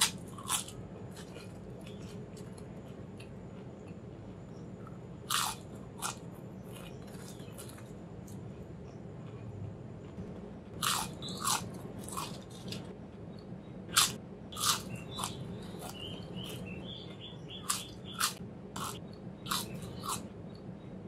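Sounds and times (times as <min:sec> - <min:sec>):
potato chips crunching: 0:00.0 - 0:04.0, 0:05.2 - 0:08.4, 0:10.8 - 0:12.9, 0:13.9 - 0:16.7, 0:17.6 - 0:20.3.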